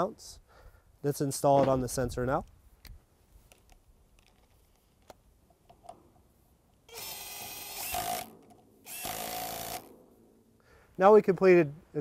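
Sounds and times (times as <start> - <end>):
cordless power driver running: 8.9 - 9.9.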